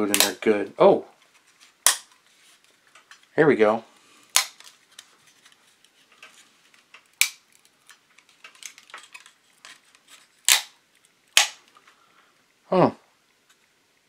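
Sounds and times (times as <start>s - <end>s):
sharp plastic snaps: 0.1s - 0.4s, 1.8s - 2.2s, 4.3s - 4.8s, 7.0s - 7.7s, 10.4s - 11.8s.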